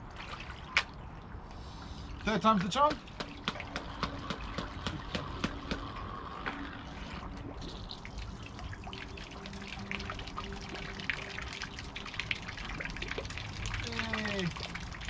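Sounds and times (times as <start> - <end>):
fountain water splashing: 7.6 - 15.0.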